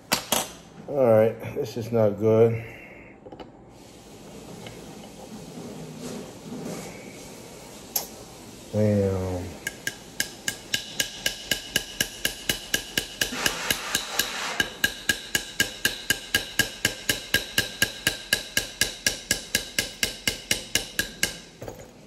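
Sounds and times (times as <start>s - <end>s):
small hammer tapping metal: 9.6s - 21.9s.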